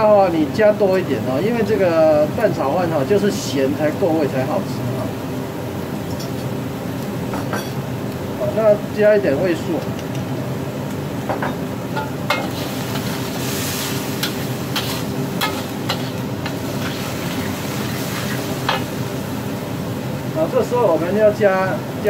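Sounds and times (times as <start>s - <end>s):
steady low hum: 0.0s - 22.0s
meat sizzling in a wok: 10.4s - 20.5s
metal spatula scraping wok: 12.3s - 18.9s.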